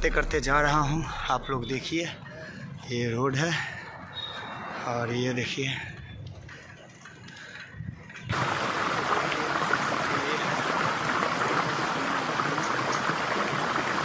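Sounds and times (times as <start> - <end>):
road noise: 0.0 - 14.0
wind noise on microphone: 7.6 - 8.7.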